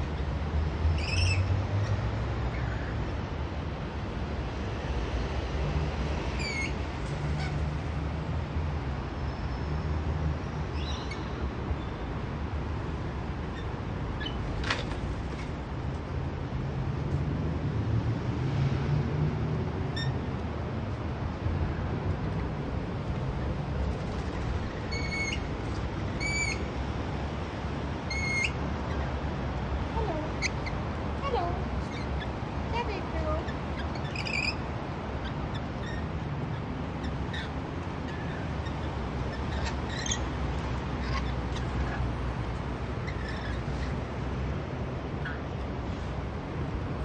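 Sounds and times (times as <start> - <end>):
lorikeets chirping: 1.0 - 1.4, 6.4 - 6.8, 10.8 - 11.9, 24.2 - 25.5, 26.1 - 26.7, 28.1 - 29.2, 30.0 - 30.8, 31.8 - 34.6, 35.2 - 42.1.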